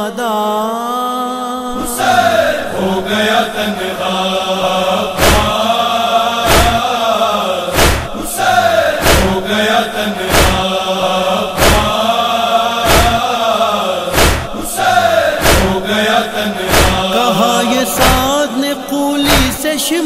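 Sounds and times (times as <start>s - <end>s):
men chanting in chorus: 0.0s - 20.0s
heavy beat: 6.5s - 6.8s, 7.8s - 8.2s, 11.6s - 11.9s, 12.9s - 13.2s, 14.1s - 14.7s, 16.7s - 18.4s, 19.3s - 19.7s.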